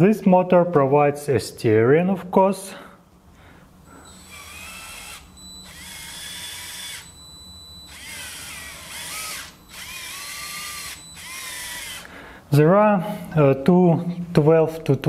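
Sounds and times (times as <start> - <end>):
micro-motor whining through gears: 4.0 - 7.2, 7.8 - 12.1.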